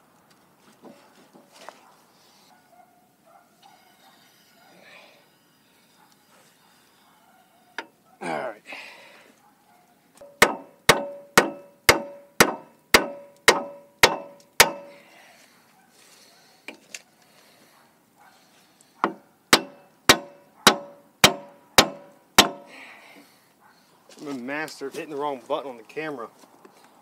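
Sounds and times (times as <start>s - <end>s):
hammer blows on wooden block: 10.2s - 15.0s, 19.0s - 22.7s.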